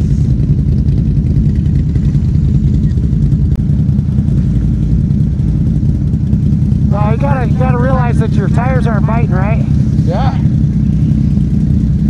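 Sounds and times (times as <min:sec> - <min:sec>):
atv engine running hard: 0:00.0 - 0:12.0.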